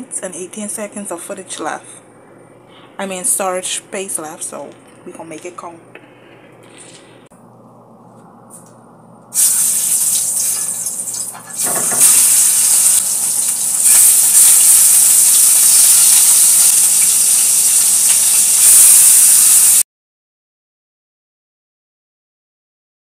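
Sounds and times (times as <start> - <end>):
chicken sizzling in oil: 9.4 - 19.8.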